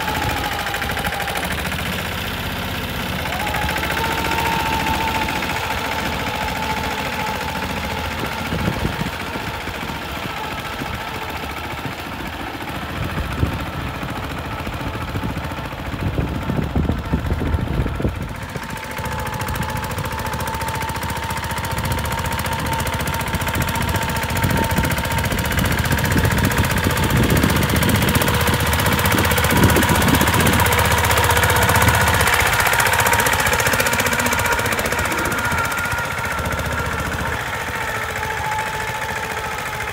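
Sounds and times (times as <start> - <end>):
tractor diesel engine chugging: 0.0 - 39.9
steady whine: 16.0 - 39.9.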